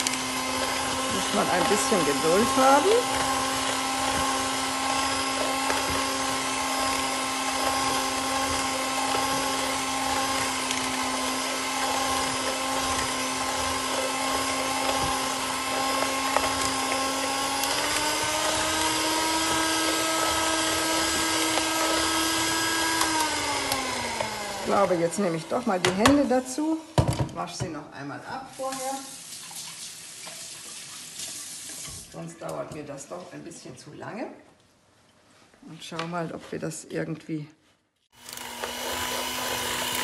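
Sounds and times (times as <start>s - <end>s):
electric hand mixer whining: 0.0s - 27.3s, 38.1s - 40.0s.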